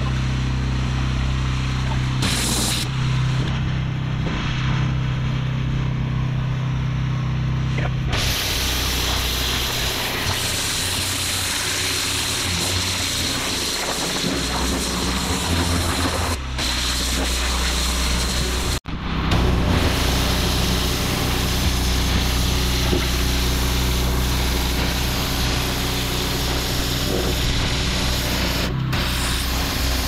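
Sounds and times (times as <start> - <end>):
pressure washer humming: 0.0 - 30.0
water jet hissing on paving: 1.9 - 2.9, 8.1 - 18.8, 19.4 - 30.0.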